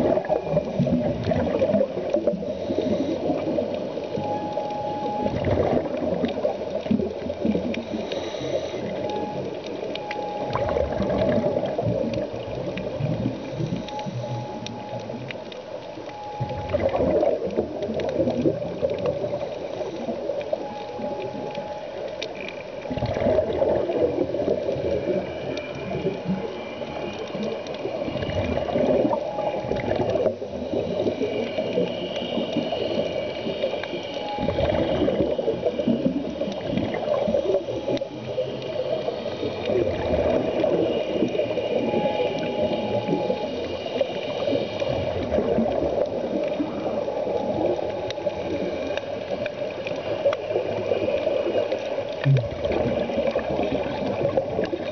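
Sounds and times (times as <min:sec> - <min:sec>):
regulator bubbles gurgling: 0:00.0 - 0:54.9
short steady tones: 0:13.5 - 0:15.4, 0:40.4 - 0:45.6.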